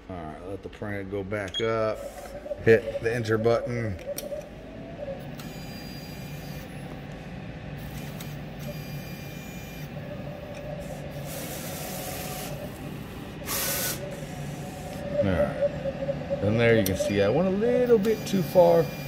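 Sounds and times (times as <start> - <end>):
print head carriage hissing: 1.8 - 4.4, 5.0 - 15.8, 16.5 - 19.0
printer motor hum: 1.8 - 19.0.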